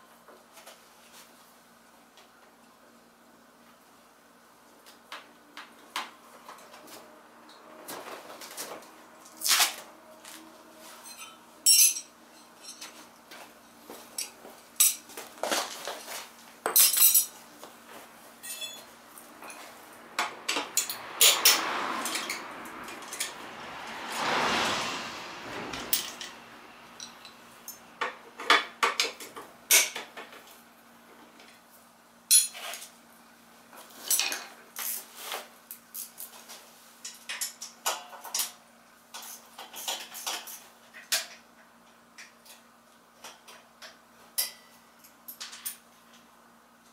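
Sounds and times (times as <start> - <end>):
metal tools clinking on concrete: 11.0 - 13.0, 14.2 - 15.1, 16.6 - 17.4, 18.4 - 19.7, 32.3 - 32.9
rush of noise: 19.4 - 28.0.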